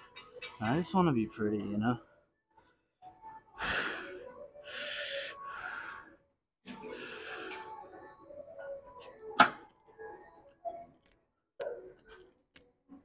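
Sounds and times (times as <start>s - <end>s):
man breathing hard: 3.6s - 6.2s.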